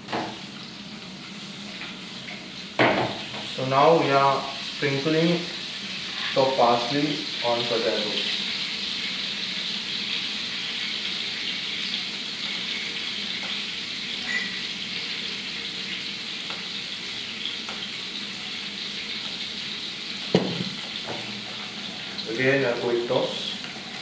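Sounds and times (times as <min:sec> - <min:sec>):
potatoes sizzling in a pan: 0:00.0 - 0:24.0
sharp knock: 0:20.4 - 0:20.8.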